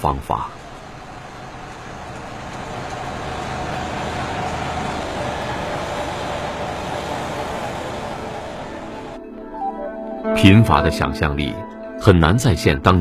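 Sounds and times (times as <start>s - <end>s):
heavy machinery engine noise: 0.0s - 9.2s.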